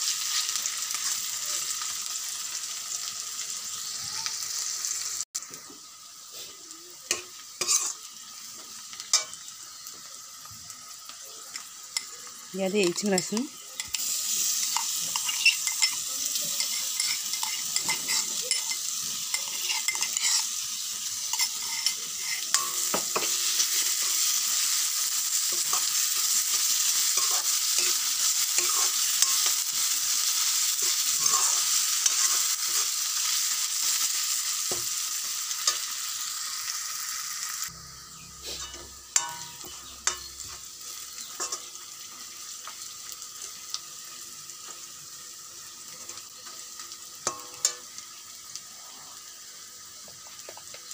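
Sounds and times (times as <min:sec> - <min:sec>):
vegetables sizzling in hot oil: 0:00.0 - 0:50.9
metal spoon scraping a wok: 0:07.1 - 0:08.1, 0:12.9 - 0:34.0, 0:37.6 - 0:42.1.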